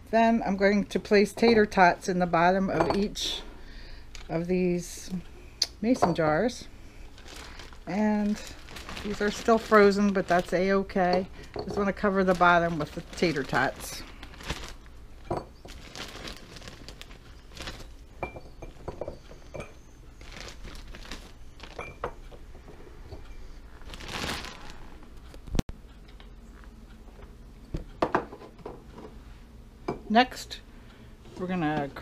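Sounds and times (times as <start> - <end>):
plastic bag crinkling: 6.5 - 18.9, 20.2 - 22.4, 23.4 - 25.6
frozen food clinking into glass jars: 7.2 - 22.4.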